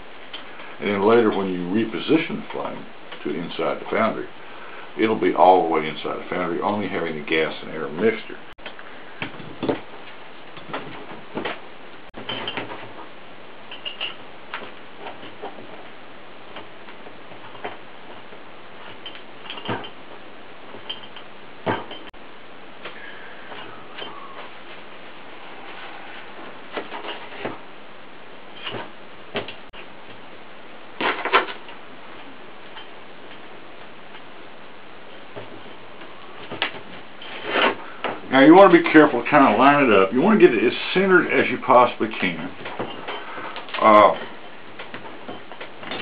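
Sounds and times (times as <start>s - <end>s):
metal tools clicking and knocking: 18.9s - 20.0s.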